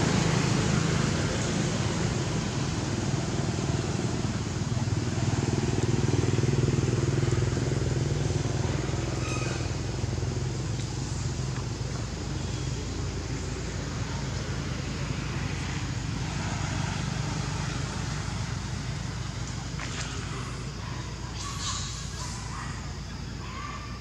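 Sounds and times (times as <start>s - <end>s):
engine running with low hum: 0.0s - 24.0s.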